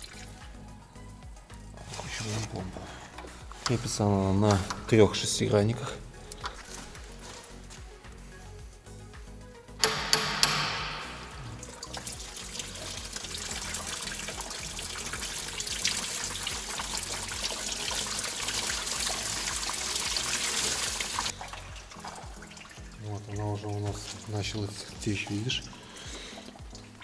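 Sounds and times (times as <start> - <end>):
coolant pouring and splashing: 0.0 - 0.6, 11.6 - 27.0
sharp clicks: 9.8 - 11.2.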